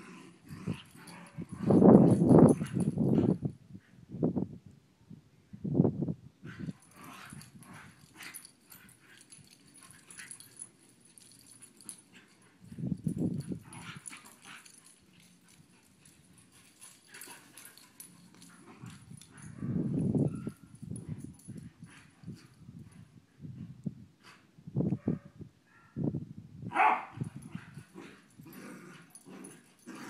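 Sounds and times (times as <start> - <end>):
dogs playing rough: 0.0 - 3.6, 6.4 - 23.3, 27.1 - 30.0.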